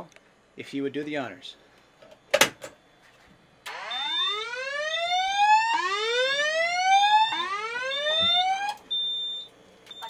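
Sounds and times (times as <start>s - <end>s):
whoop alarm tone: 3.7s - 8.8s.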